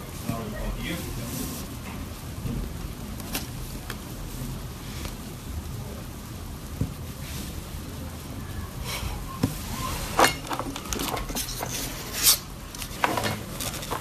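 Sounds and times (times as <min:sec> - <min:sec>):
low room hum: 0:00.0 - 0:14.0
soft rustling: 0:00.1 - 0:02.3.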